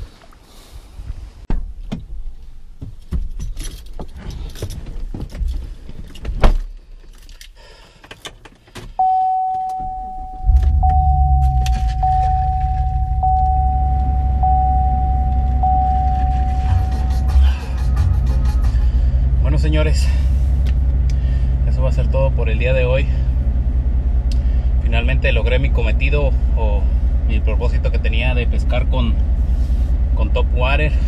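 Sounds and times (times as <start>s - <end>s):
car engine starting and idling: 7.2s - 31.0s
car warning chime: 9.0s - 17.6s.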